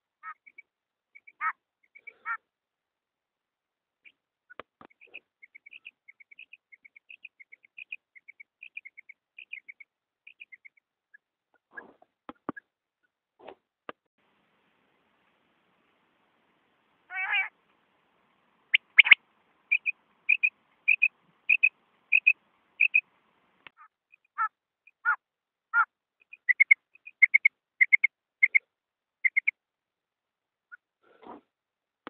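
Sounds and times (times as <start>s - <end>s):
quail calls: 0.2s - 0.6s, 1.2s - 2.4s, 17.1s - 17.6s, 18.7s - 23.0s, 23.7s - 28.6s, 29.2s - 29.5s.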